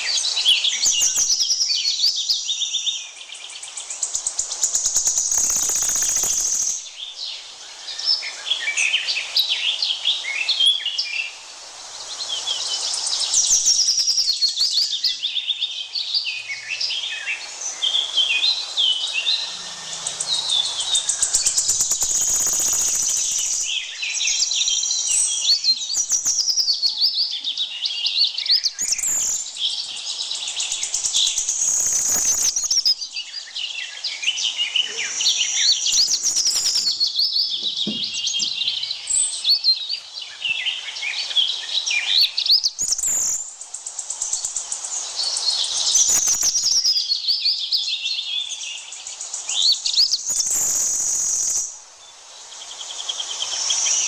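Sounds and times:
birds chirping and calling: 0.0 - 51.8
high insect buzz: 4.0 - 15.0, 16.7 - 26.7, 28.7 - 33.4, 34.7 - 39.6, 41.8 - 47.1, 49.1 - 54.0.

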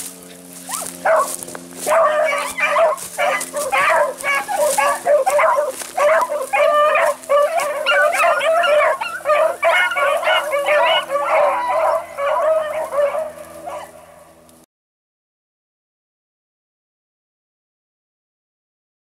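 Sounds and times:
hounds baying: 0.2 - 14.4.

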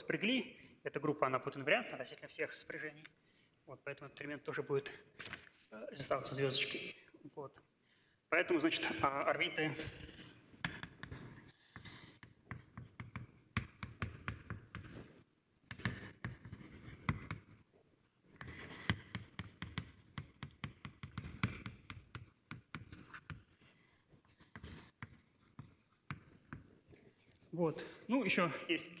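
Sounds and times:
writing scratching on a board: 9.8 - 17.6, 18.3 - 27.4.

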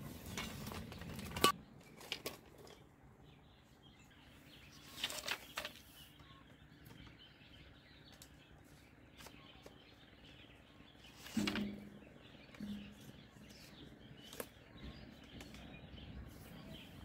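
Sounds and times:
bamboo strips clicking and clattering: 0.0 - 3.0, 4.8 - 6.2, 11.1 - 14.6.

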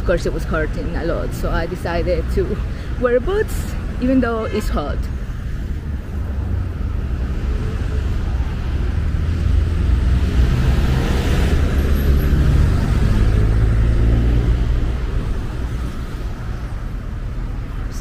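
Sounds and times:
traffic rumble: 0.0 - 18.0
vehicle passing close by: 5.7 - 17.6.

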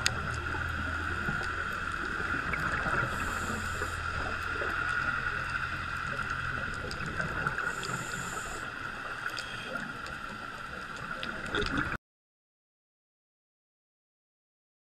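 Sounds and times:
faint clicks: 0.0 - 8.4, 9.0 - 11.9
underwater hum: 0.0 - 12.0.

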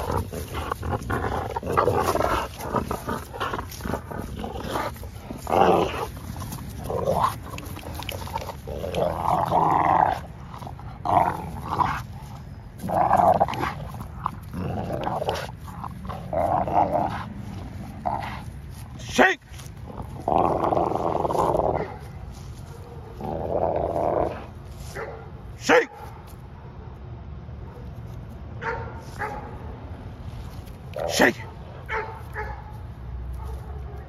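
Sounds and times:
dogs growling: 0.0 - 24.7.

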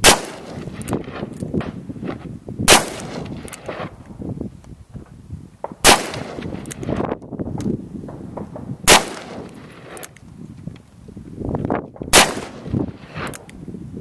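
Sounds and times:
handgun gunshots: 12.1 - 12.6.

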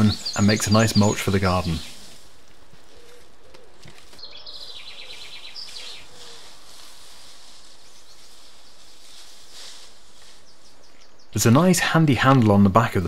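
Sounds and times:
songbird trill: 0.0 - 11.9
outdoor background noise: 0.0 - 13.0
pigeon cooing: 2.8 - 6.7.

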